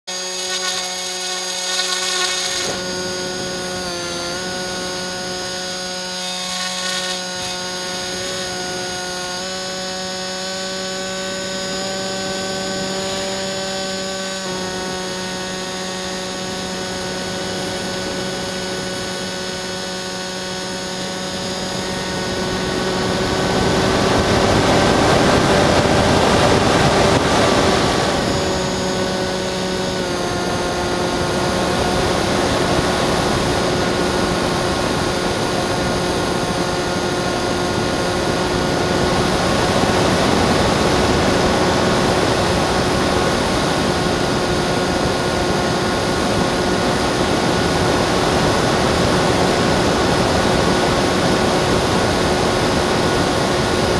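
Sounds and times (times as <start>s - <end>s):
electric motor and propeller whine: 0.0s - 53.9s
wind noise: 21.3s - 53.9s.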